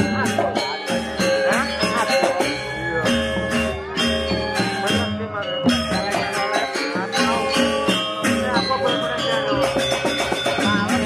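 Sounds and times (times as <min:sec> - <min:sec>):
gamelan music: 0:00.0 - 0:11.0
rattling percussion: 0:00.0 - 0:11.0.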